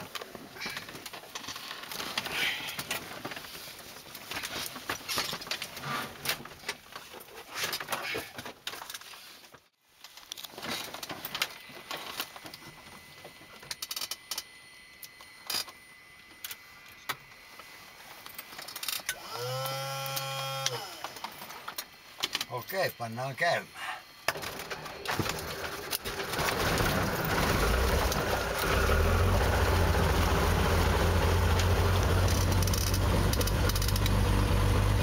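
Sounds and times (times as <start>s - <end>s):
steady multi-tone hum: 10.3s - 35.0s.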